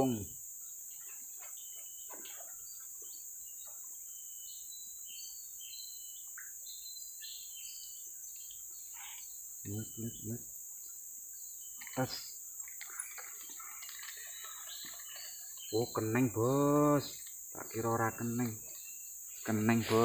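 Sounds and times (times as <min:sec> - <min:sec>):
bird chirps: 0:00.0 - 0:20.0
insects droning: 0:00.0 - 0:20.0
low voice sounds: 0:19.5 - 0:20.0.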